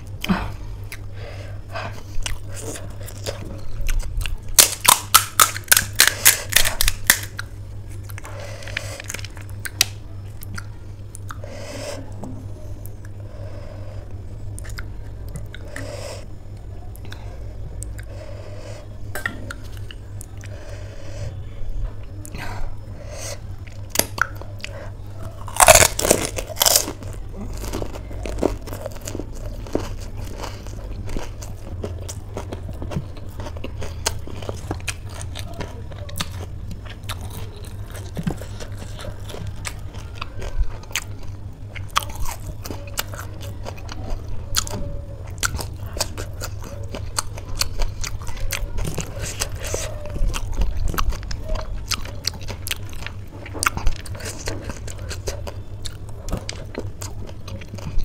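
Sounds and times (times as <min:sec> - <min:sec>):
chewing with small crunches: 0:00.0 - 0:58.0
crisp crunch of biting: 0:02.2 - 0:11.4, 0:23.7 - 0:58.0.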